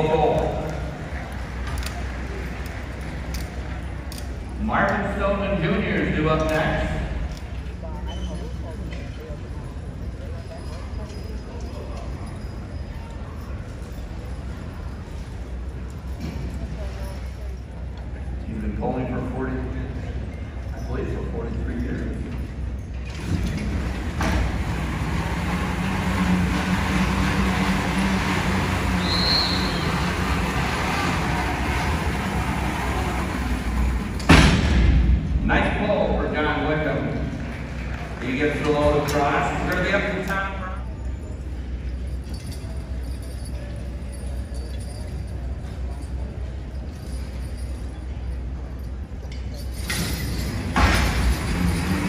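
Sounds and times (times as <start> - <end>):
harness chains jingling: 0.0 - 34.4, 36.4 - 52.0
dragged truck rumbling: 18.6 - 52.0
short high whistle: 29.0 - 30.0.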